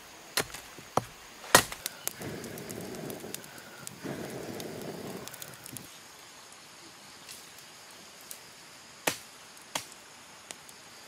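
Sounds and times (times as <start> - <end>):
faint forest background: 0.0 - 11.0
small ticks: 1.8 - 5.9.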